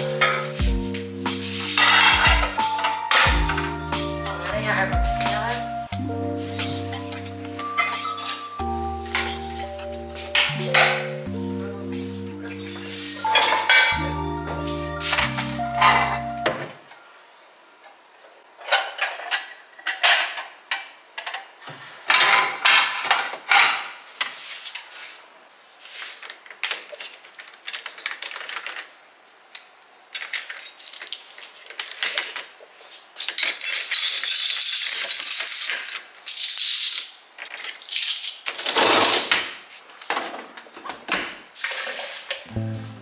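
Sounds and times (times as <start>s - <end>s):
dishes and cutlery clattering: 1.7s - 3.8s, 6.6s - 9.8s, 12.8s - 14.0s, 18.6s - 24.0s.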